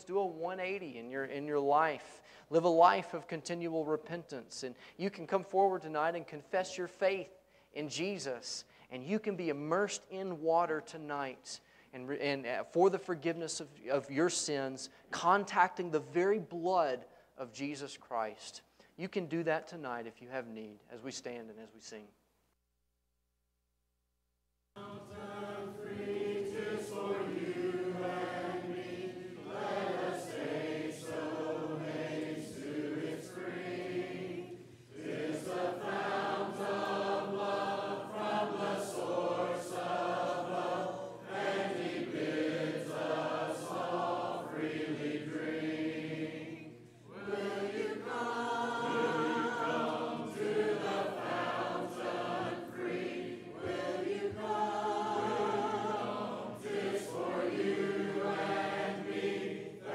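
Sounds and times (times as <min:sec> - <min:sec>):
congregation singing a hymn: 0:24.8 - 0:59.9.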